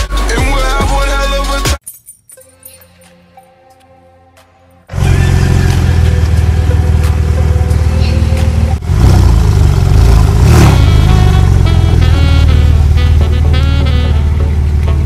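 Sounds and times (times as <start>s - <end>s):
car engine accelerating: 4.9s - 15.0s.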